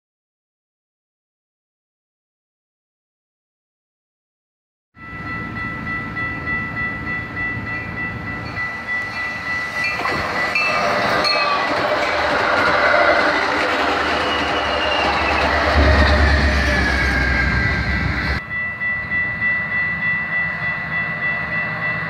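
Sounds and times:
crossing bell ringing: 0:05.0 - 0:22.0
train passing: 0:05.0 - 0:22.0.

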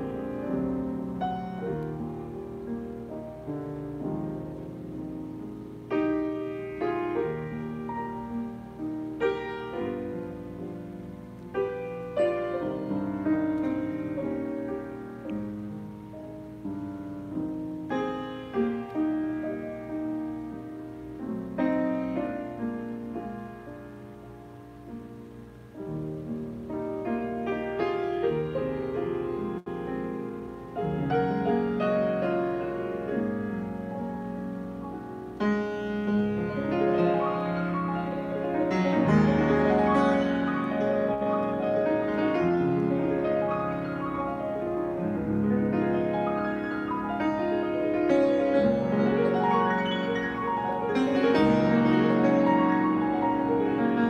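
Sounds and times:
grand piano chords: 0:00.0 - 0:54.0.

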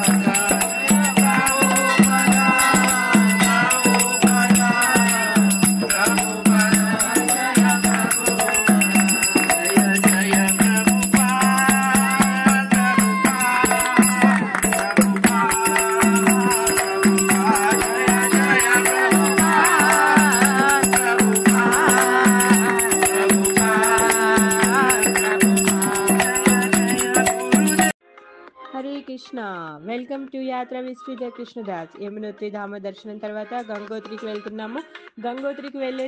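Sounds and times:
person singing into microphone: 0:00.0 - 0:27.9
barrel drum beating: 0:00.0 - 0:28.0
steady held tone: 0:00.0 - 0:28.0
hand claps: 0:05.9 - 0:27.9.

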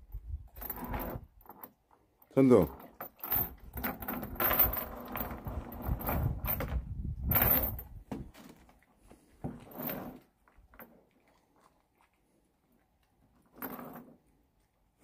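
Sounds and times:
metal chain rattling on wooden deck: 0:00.0 - 0:08.4, 0:09.5 - 0:11.0, 0:13.4 - 0:14.2.

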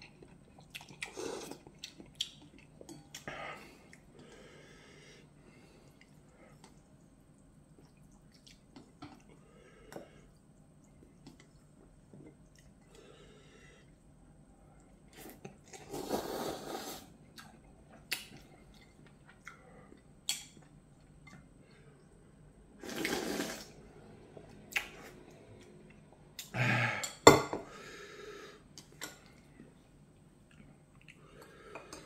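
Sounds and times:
chewing: 0:00.0 - 0:04.1, 0:07.7 - 0:09.4, 0:17.3 - 0:21.8, 0:30.5 - 0:32.0
person slurping noodles: 0:15.2 - 0:17.1, 0:22.8 - 0:23.8.

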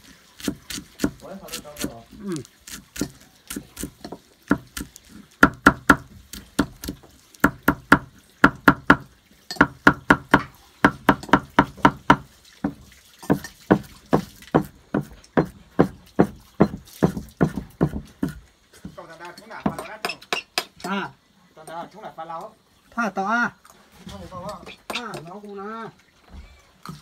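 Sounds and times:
cleaver chopping on wooden board: 0:00.4 - 0:02.0, 0:02.6 - 0:19.0.

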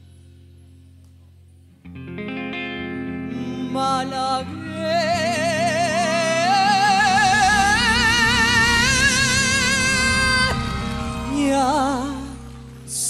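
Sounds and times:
live band sustained chords: 0:00.0 - 0:13.0
man singing with vibrato: 0:03.3 - 0:13.0.

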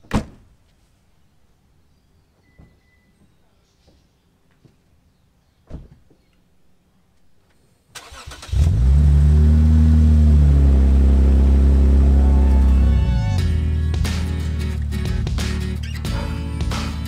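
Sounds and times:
car engine starting and idling: 0:07.9 - 0:17.0.

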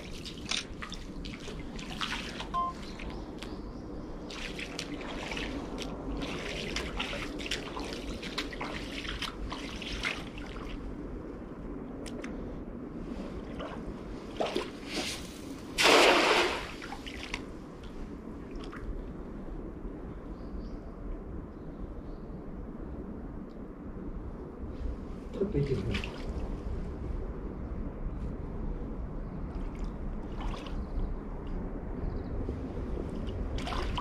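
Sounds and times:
water dripping and trickling: 0:00.0 - 0:03.5, 0:04.3 - 0:10.8
net splashing into water: 0:15.8 - 0:17.4.

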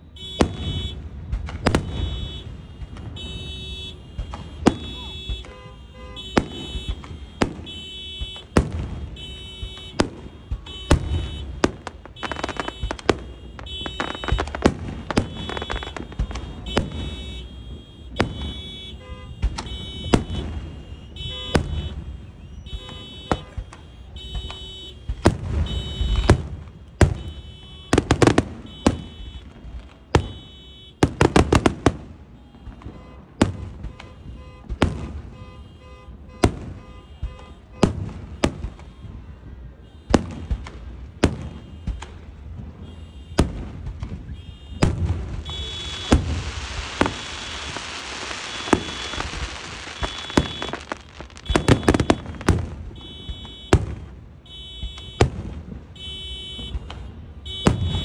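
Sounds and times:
car alarm beeping: 0:00.0 - 0:31.7, 0:44.2 - 0:55.3, 0:56.0 - 0:58.0
fireworks bangs: 0:00.0 - 0:58.0
fireworks crackling: 0:00.1 - 0:58.0.

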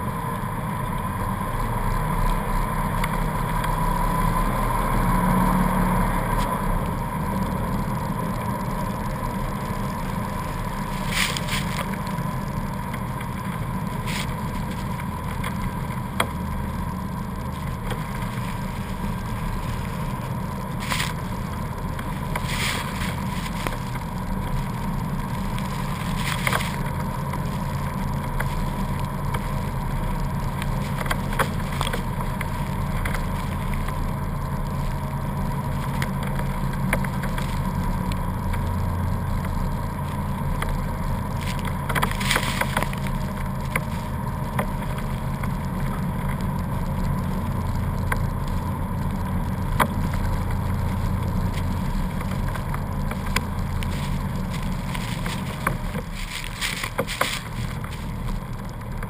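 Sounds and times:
car engine droning: 0:00.0 - 0:59.0.

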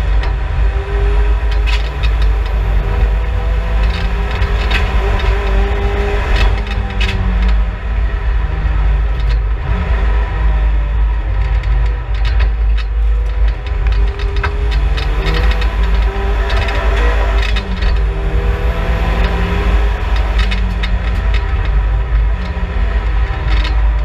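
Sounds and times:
short knocks and rattles: 0:00.0 - 0:07.7, 0:11.3 - 0:24.0
car engine rising and falling: 0:00.0 - 0:24.0
wind and road noise rumble: 0:00.0 - 0:24.0.

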